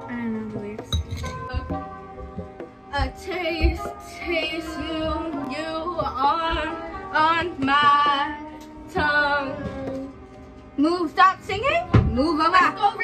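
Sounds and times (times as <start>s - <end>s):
steady held musical notes: 0.0s - 13.0s.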